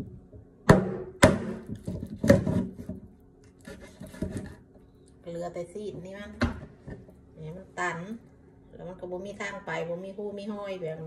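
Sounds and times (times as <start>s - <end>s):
knife chopping on wooden board: 0.7s - 3.0s, 3.6s - 4.6s
knife scraping and cutting: 3.5s - 4.7s.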